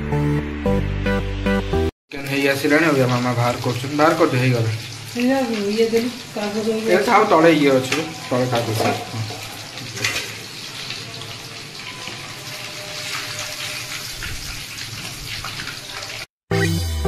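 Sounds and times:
food sizzling in hot oil: 2.1s - 16.3s
guitar music: 16.5s - 17.0s.

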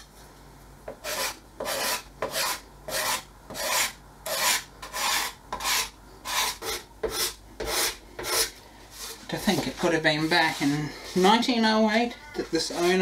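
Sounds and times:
card scraper scraping wood: 1.0s - 9.2s.

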